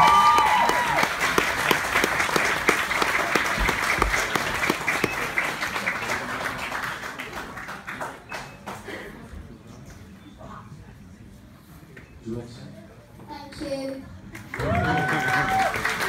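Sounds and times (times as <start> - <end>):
audience cheering: 0.0 - 2.1, 14.5 - 16.0
audience clapping: 0.0 - 9.0, 14.3 - 16.0.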